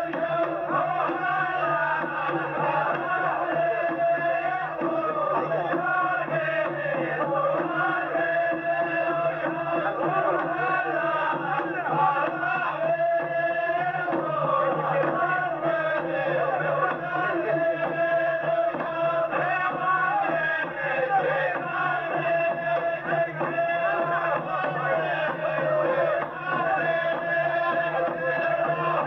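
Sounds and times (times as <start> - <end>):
men chanting in unison: 0.0 - 29.0.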